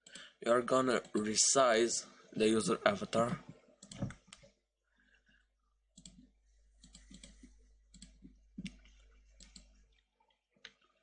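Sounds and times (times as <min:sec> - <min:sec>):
computer mouse clicks: 0:03.8 - 0:04.6, 0:06.0 - 0:09.7.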